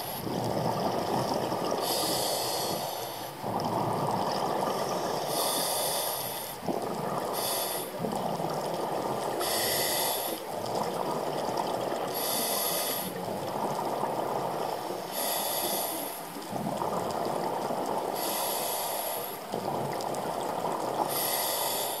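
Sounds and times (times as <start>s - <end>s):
bubbling exhale: 0.0s - 22.0s
hissing regulator inhale: 1.8s - 3.6s, 4.6s - 6.6s, 7.2s - 8.1s, 9.2s - 10.5s, 12.0s - 13.2s, 14.9s - 16.4s, 18.1s - 19.5s, 21.0s - 22.0s.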